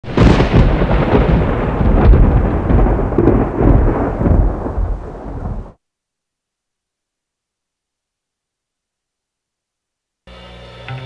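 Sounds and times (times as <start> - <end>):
booming rumble with crackles: 0.0 - 5.8.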